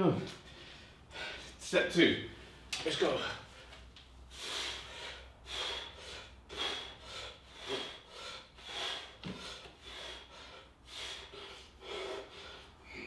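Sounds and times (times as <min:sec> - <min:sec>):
man breathing hard: 0:00.4 - 0:01.6, 0:02.3 - 0:13.0.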